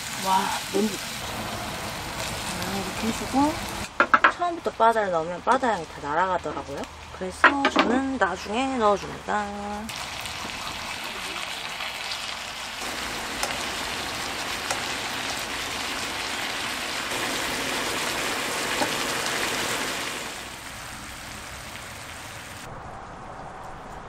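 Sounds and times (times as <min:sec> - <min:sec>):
scallops sizzling in a frying pan: 0:00.0 - 0:03.9, 0:09.9 - 0:22.6.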